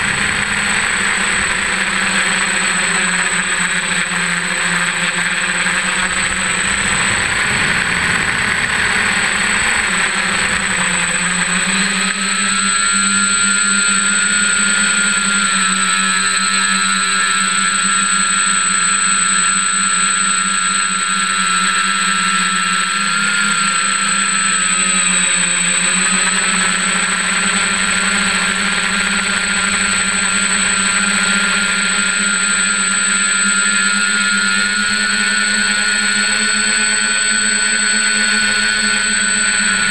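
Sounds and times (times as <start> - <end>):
drone motors and propellers whirring: 0.0 - 3.4, 5.2 - 11.8.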